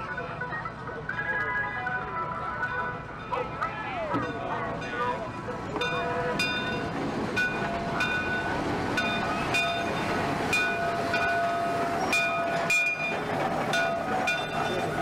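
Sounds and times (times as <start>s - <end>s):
locomotive rumble: 0.0s - 15.0s
wheels squealing on rail: 5.7s - 15.0s.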